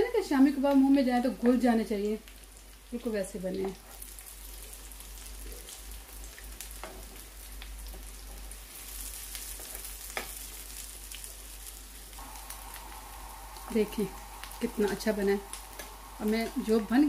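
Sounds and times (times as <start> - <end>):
oil sizzling in a pan: 0.0 - 17.0.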